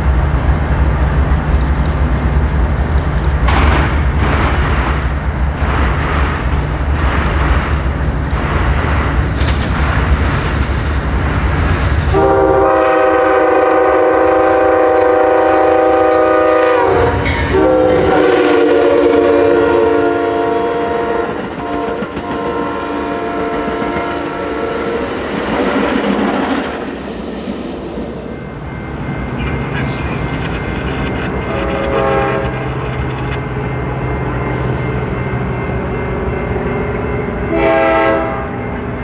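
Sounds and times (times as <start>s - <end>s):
diesel locomotive rumbling: 0.0s - 39.0s
train air horn blasts: 12.1s - 25.0s, 31.4s - 32.8s, 36.9s - 38.8s.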